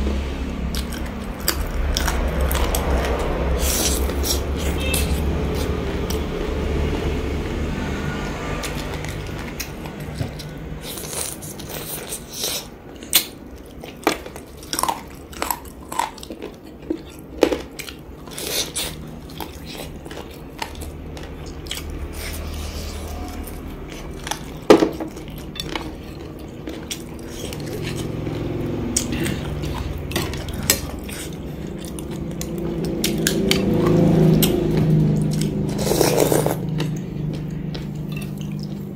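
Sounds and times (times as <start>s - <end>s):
chewing fried food: 0.6s - 6.7s, 8.3s - 38.9s.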